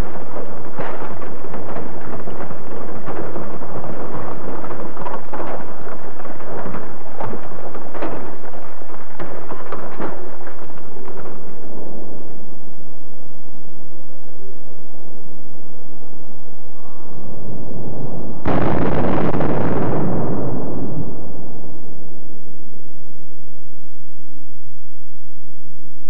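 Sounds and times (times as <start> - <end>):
rocks and metal debris rattling: 0.0 - 12.8.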